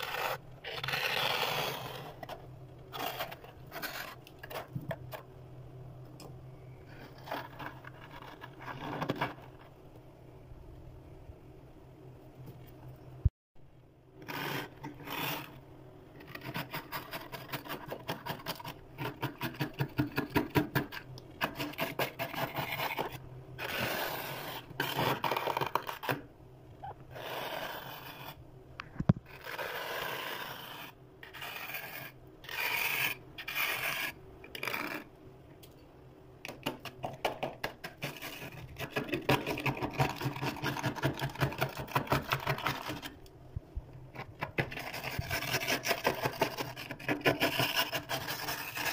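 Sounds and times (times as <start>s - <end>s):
plastic scraper scraping frost: 0.0s - 4.8s, 21.4s - 26.2s, 29.3s - 35.1s, 44.6s - 48.9s.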